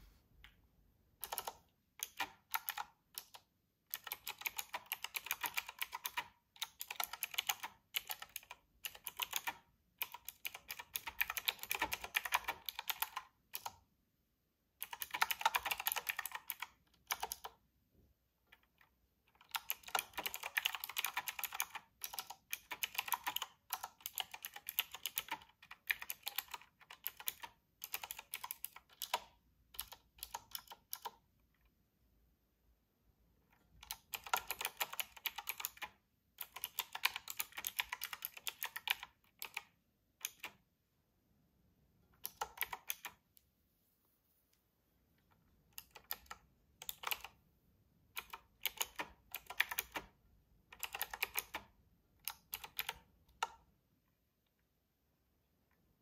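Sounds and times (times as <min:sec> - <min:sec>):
fast clicking keyboard typing: 0:01.2 - 0:13.8, 0:14.8 - 0:17.6, 0:18.5 - 0:31.2, 0:33.6 - 0:40.6, 0:42.2 - 0:43.2, 0:45.7 - 0:47.4, 0:48.1 - 0:53.6.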